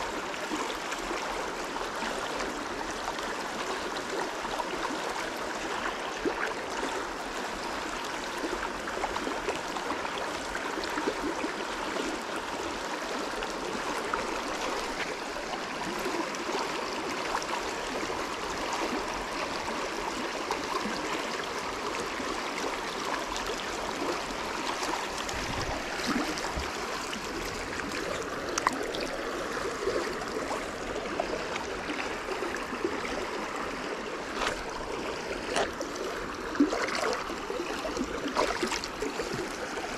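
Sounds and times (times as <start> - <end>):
stream water running: 0.0 - 39.9.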